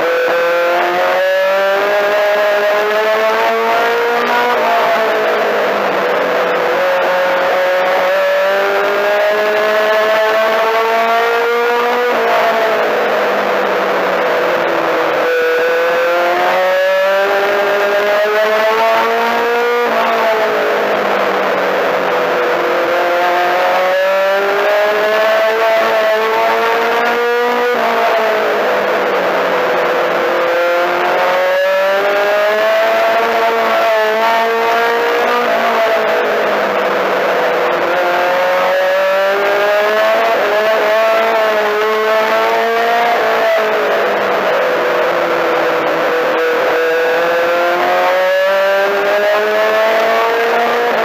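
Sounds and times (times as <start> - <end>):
race car engine revving: 0.0 - 51.0.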